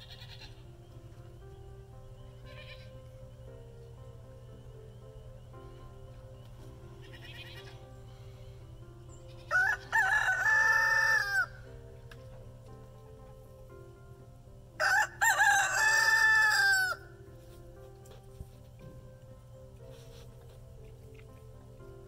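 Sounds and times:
faint background music: 0.0 - 22.0
rooster crowing: 9.4 - 11.7, 14.8 - 17.1.

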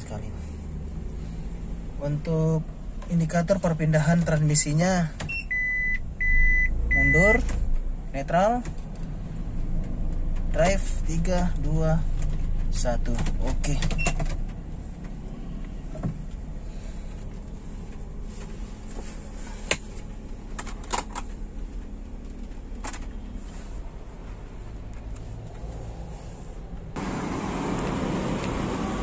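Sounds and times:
engine idling hum: 0.0 - 8.1, 14.4 - 29.0.

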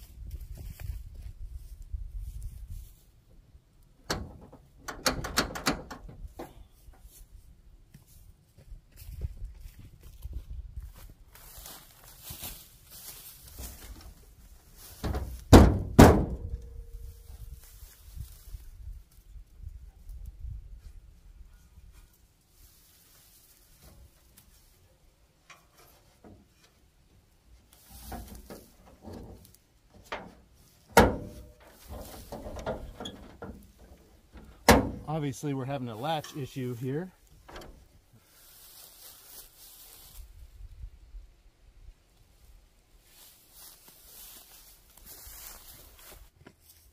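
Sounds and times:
hood latch clicking and rattling: 4.0 - 6.5, 37.4 - 37.8
truck hood banging shut: 4.1 - 6.5, 15.0 - 16.6, 30.0 - 35.1, 37.5 - 37.8
light knocks and rattles: 27.9 - 35.1.

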